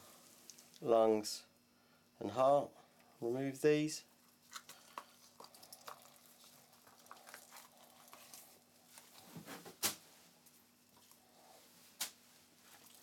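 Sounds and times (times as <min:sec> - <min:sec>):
faint wet squelches: 0:04.1 - 0:09.2.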